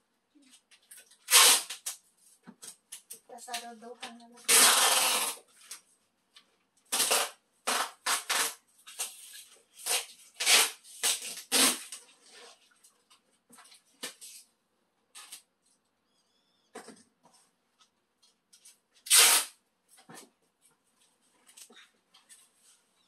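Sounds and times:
packing tape crackling off roll: 0:00.9 - 0:02.0, 0:02.7 - 0:05.8, 0:06.9 - 0:12.0, 0:18.6 - 0:19.6.

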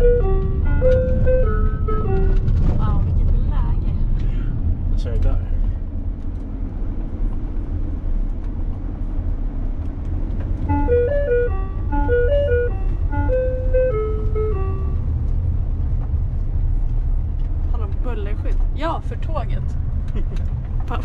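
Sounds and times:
ice cream van chime melody: 0:00.0 - 0:02.8, 0:10.6 - 0:15.3
road noise: 0:00.0 - 0:21.0
van engine: 0:00.0 - 0:21.0.

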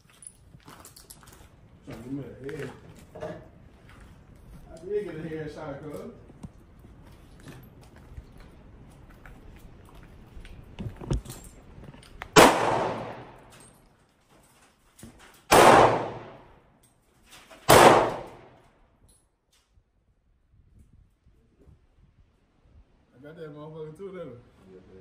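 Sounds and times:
pistol shots with echo: 0:12.4 - 0:13.5, 0:15.5 - 0:16.5, 0:17.7 - 0:18.6.

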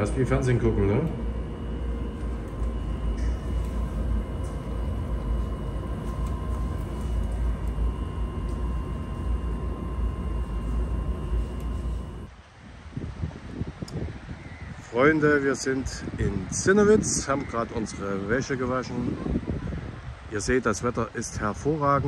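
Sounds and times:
tumble dryer running: 0:00.0 - 0:12.3.

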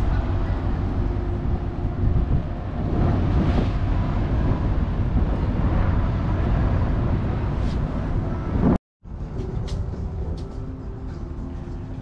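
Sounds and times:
wind on microphone: 0:00.0 - 0:10.4
ship engine rumble and hum: 0:00.0 - 0:12.0.

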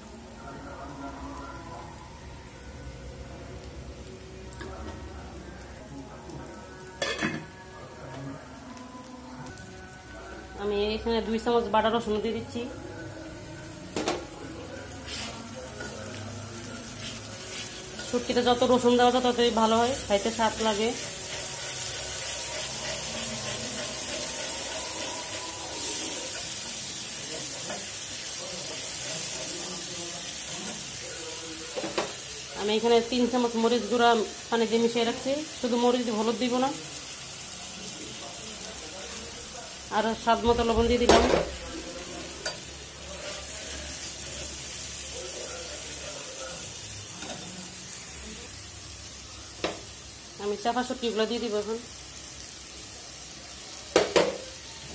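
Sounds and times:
onions sizzling in oil: 0:00.0 - 0:54.9
metal spatula stirring: 0:20.1 - 0:26.5.

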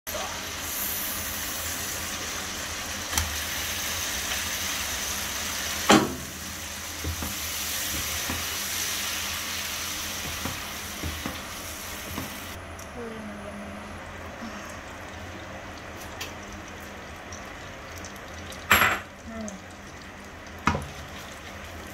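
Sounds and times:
butter sizzling in a frying pan: 0:00.1 - 0:12.6, 0:14.7 - 0:21.9
wooden spatula knocking on pan: 0:05.9 - 0:06.3, 0:07.0 - 0:08.5, 0:10.2 - 0:11.4.

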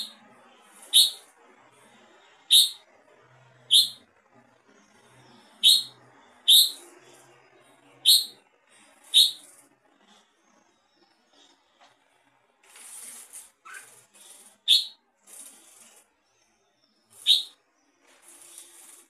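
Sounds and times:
bird chirping: 0:00.0 - 0:00.2, 0:00.8 - 0:01.3, 0:01.9 - 0:02.8, 0:03.5 - 0:04.0, 0:04.6 - 0:11.6, 0:13.6 - 0:15.0, 0:15.7 - 0:19.0.

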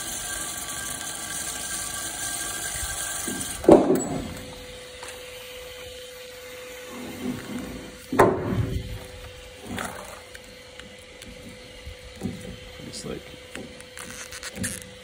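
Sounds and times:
wire-stripping machine humming: 0:00.0 - 0:15.0.

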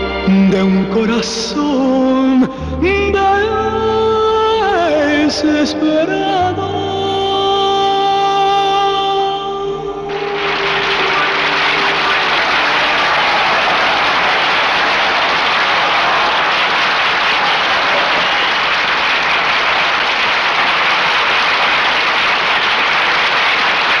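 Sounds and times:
large audience applauding: 0:10.1 - 0:24.0.

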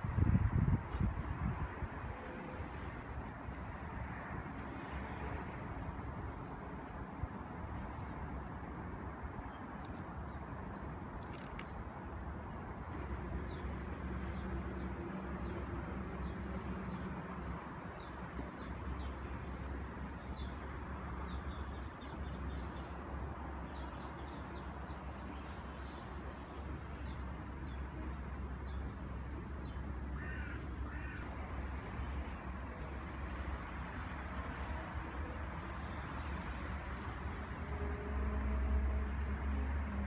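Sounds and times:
small birds chirping: 0:07.2 - 0:12.0, 0:12.9 - 0:32.3
harsh bird calls: 0:29.5 - 0:31.3.

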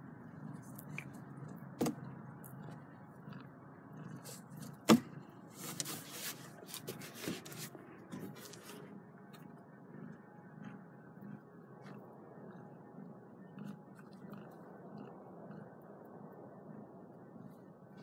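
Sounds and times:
kittens rustling and scraping: 0:04.2 - 0:09.0.

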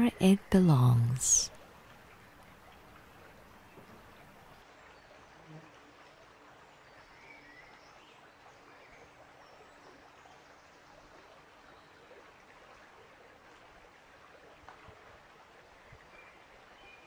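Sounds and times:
faint outdoor hiss: 0:00.0 - 0:13.3.

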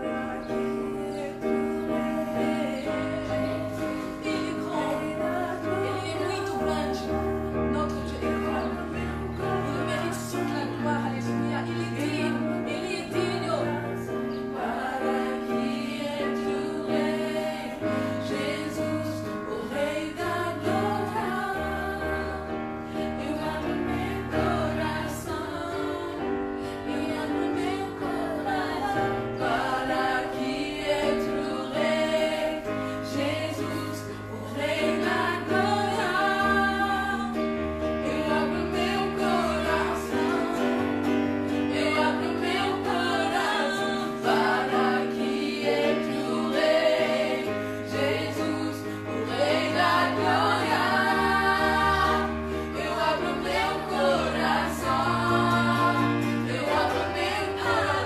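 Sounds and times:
woman singing: 0:00.0 - 0:22.6
children singing: 0:00.0 - 0:58.0.

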